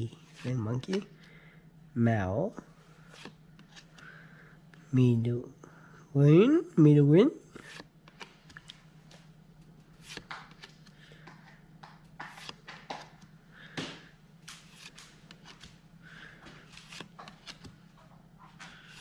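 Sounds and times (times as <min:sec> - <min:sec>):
faint low hum: 0:00.0 - 0:19.0
trading cards sliding and flicking: 0:03.0 - 0:04.1, 0:07.6 - 0:17.9, 0:18.5 - 0:19.0.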